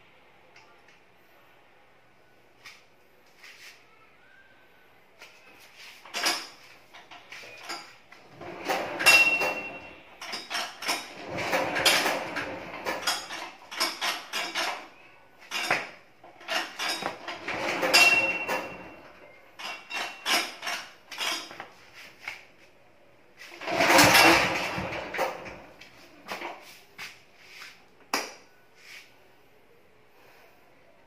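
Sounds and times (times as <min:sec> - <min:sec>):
generator metallic clattering: 0:06.1 - 0:14.9, 0:15.5 - 0:21.6, 0:23.6 - 0:25.8.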